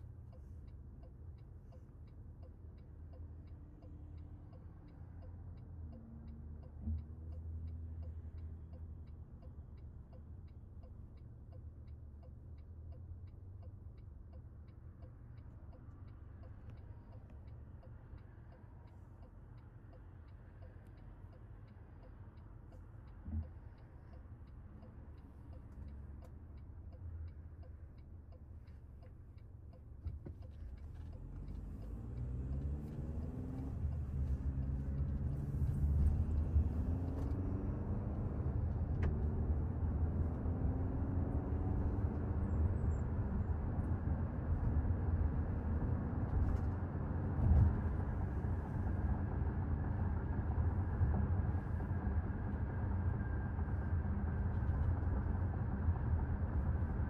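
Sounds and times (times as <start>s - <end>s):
road and tyre rumble: 0.0s - 57.0s
turn signal ticking: 0.0s - 57.0s
car engine accelerating: 30.1s - 57.0s.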